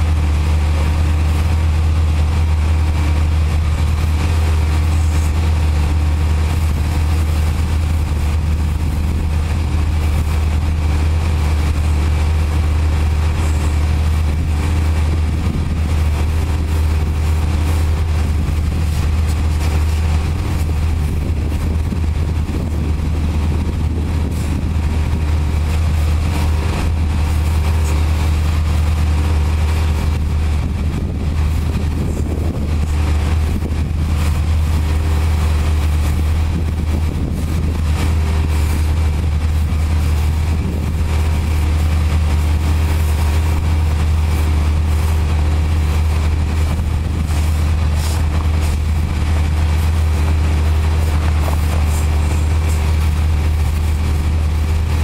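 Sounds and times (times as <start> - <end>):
low engine hum: 0.0 - 55.0
pressure washer spraying hiss: 37.3 - 55.0.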